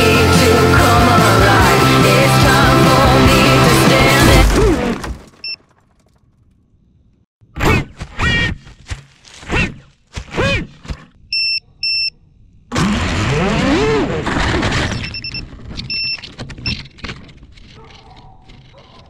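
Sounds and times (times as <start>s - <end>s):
short electronic beeps: 11.3s - 12.2s, 15.0s - 16.8s.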